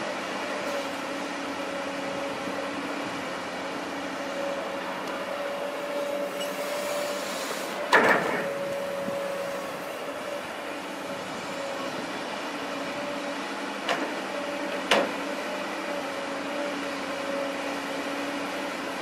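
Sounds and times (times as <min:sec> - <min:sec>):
excavator engine running: 0:00.0 - 0:19.0.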